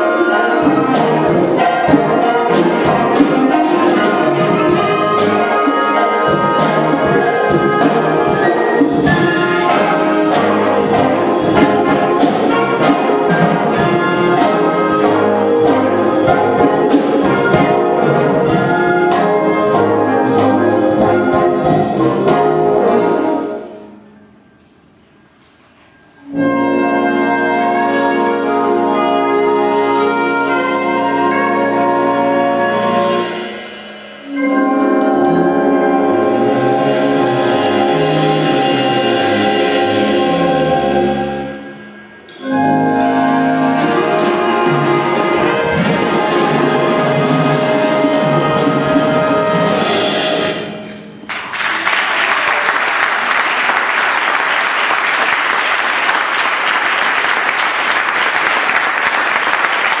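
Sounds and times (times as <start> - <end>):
wind band playing chords: 0.0 - 60.0
audience applause: 51.2 - 60.0.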